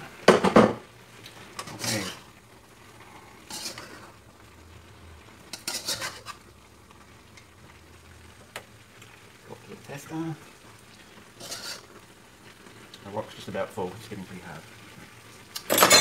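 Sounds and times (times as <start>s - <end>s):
utensil scraping wok: 1.1s - 7.8s, 9.8s - 13.6s
utensil clanking on wok: 1.5s - 2.3s, 3.4s - 4.2s, 5.5s - 6.4s, 11.4s - 11.9s, 15.6s - 16.0s.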